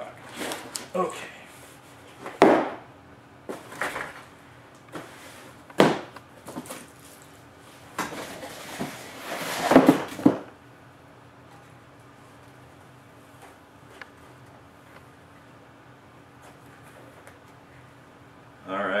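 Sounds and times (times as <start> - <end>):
scuffs and bumps on workbench: 2.1 - 2.8, 4.9 - 6.9, 7.9 - 10.5
scraping and rustling: 6.4 - 10.4.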